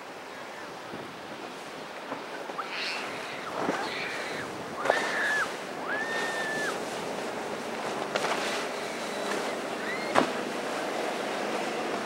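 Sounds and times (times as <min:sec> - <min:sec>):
waves and boat spray: 0:00.0 - 0:12.0
wind noise on microphone: 0:03.0 - 0:07.3.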